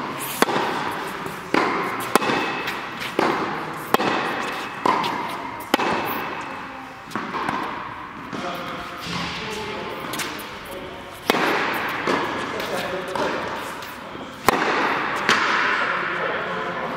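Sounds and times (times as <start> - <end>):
tennis ball struck by rackets: 0.0 - 8.4, 11.2 - 13.7, 14.4 - 15.9
tennis ball bouncing on hard court: 0.0 - 9.4, 11.2 - 13.7, 14.4 - 15.8.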